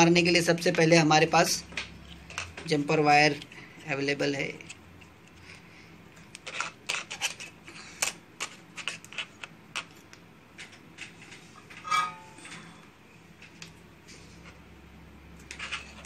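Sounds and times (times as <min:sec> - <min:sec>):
loud scrape: 0:11.8 - 0:12.8.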